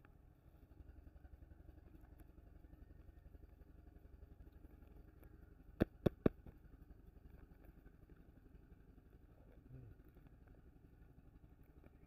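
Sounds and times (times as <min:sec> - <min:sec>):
faint low rumble: 0:00.0 - 0:12.0
taps on a plastic lid: 0:05.8 - 0:06.5.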